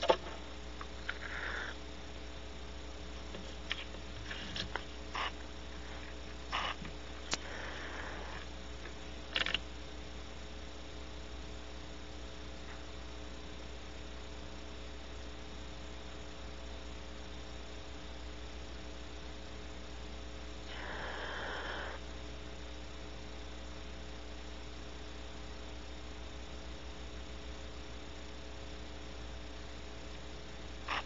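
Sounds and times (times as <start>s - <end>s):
electrical mains hum: 0.0s - 31.0s
faint hiss: 0.0s - 31.0s
owl hissing: 1.0s - 1.8s, 4.2s - 8.5s, 20.6s - 22.0s.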